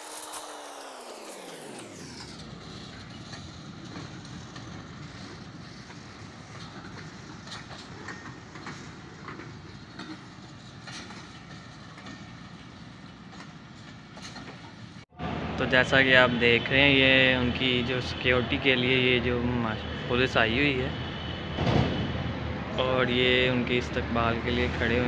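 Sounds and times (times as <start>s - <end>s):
train wheels clattering over rail joints: 2.6s - 15.0s.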